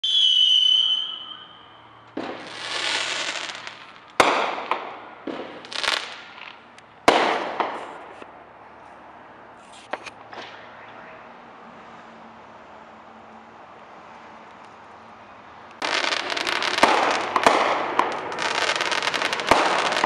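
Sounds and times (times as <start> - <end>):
firework whistle: 0.0 - 4.6
firework bangs with crackle: 2.2 - 8.2, 15.8 - 20.0.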